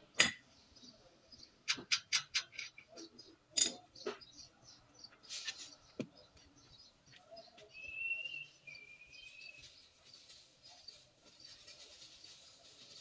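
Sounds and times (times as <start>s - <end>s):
metal clinks and knocks: 1.7s - 4.2s.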